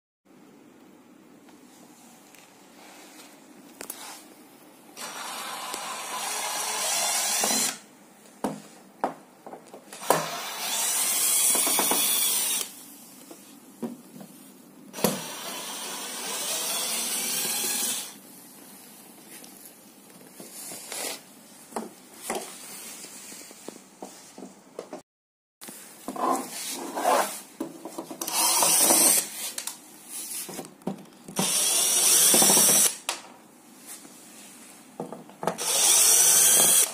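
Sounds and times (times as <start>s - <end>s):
cordless drill running: 5.0s - 7.8s, 10.0s - 12.7s, 15.0s - 18.2s, 28.3s - 29.3s, 31.4s - 33.0s, 35.6s - 36.9s.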